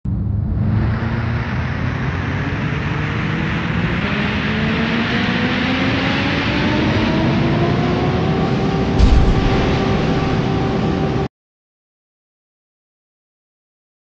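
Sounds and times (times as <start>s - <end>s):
synth riser rushing noise: 0.6s - 11.3s
low hum: 9.0s - 11.3s.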